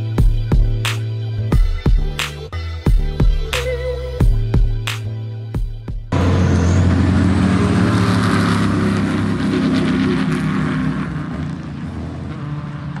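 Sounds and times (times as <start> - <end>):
race car engine running hard: 6.1 - 13.0.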